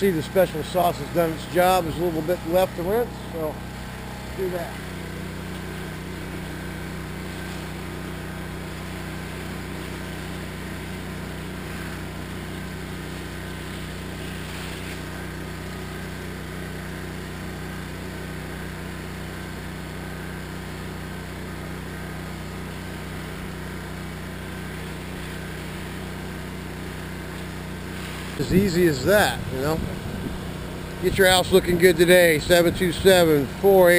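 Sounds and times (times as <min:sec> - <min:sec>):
pressure washer engine running: 0:00.0 - 0:33.9
hiss of water spray: 0:08.7 - 0:10.8, 0:12.9 - 0:15.2, 0:27.8 - 0:28.5.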